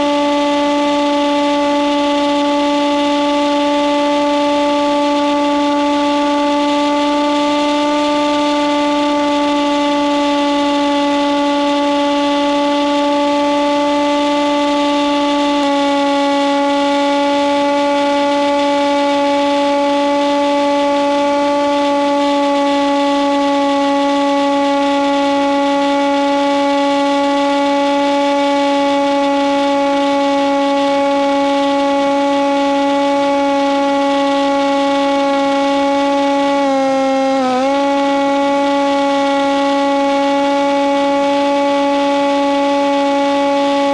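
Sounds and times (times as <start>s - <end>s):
model plane electric motor whine: 0.0s - 43.9s.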